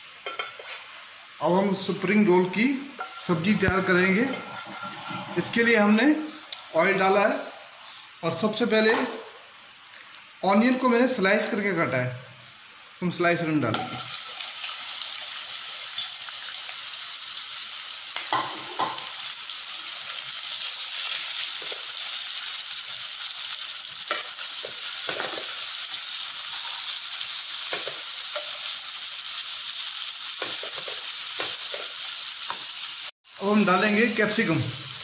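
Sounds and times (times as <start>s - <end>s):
onions sizzling in hot oil: 0.0s - 11.6s, 12.3s - 35.0s
wooden spatula scraping a pan: 3.0s - 6.4s.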